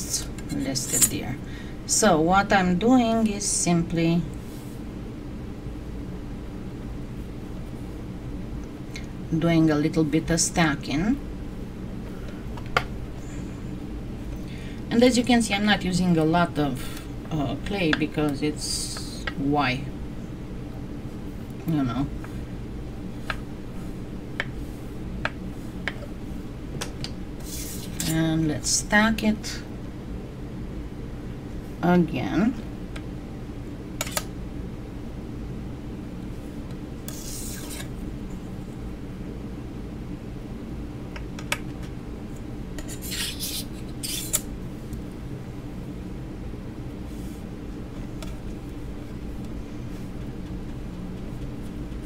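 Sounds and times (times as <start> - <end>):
steady low hum: 0.0 - 52.0
scraping rubs: 27.4 - 28.2, 37.1 - 37.9, 42.8 - 44.4.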